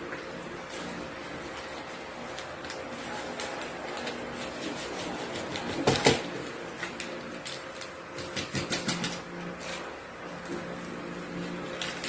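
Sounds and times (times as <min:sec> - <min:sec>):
crackling rustle: 0:00.1 - 0:08.1
foil sachets crinkling: 0:00.6 - 0:08.0.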